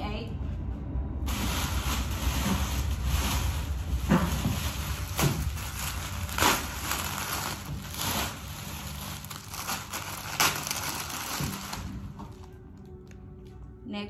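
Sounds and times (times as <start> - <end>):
plastic bag crinkling: 1.3 - 13.5.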